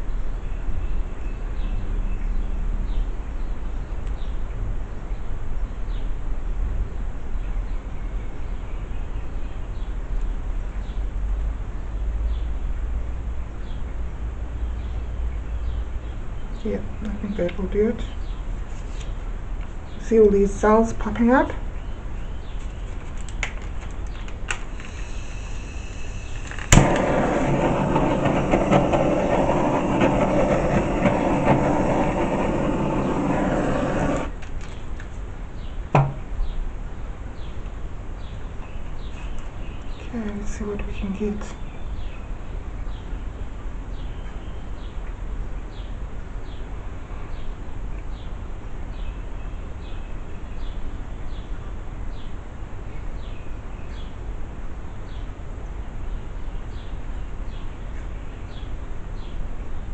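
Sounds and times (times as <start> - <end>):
low rumbling background noise: 0.0 - 59.9
torch igniter clicking: 23.2 - 34.6
torch flame hissing: 24.6 - 34.4.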